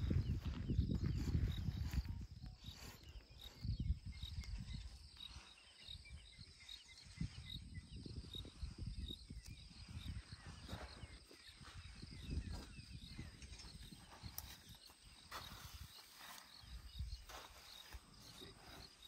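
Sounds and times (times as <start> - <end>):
insect chirping: 0.0 - 19.0.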